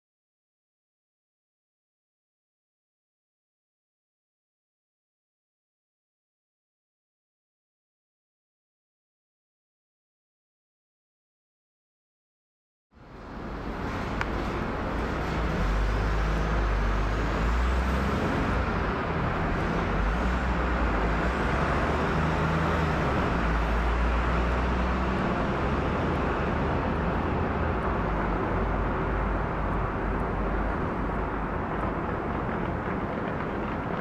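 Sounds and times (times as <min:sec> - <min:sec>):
distant jet engine roar: 0:13.0 - 0:34.0.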